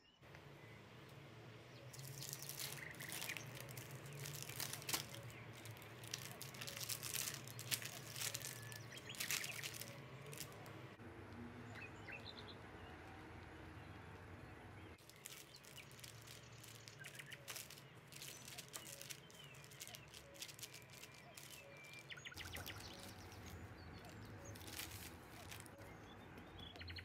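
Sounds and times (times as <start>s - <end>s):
birds chirping: 0.0s - 27.0s
parchment paper crinkling: 1.9s - 10.8s, 15.0s - 26.2s.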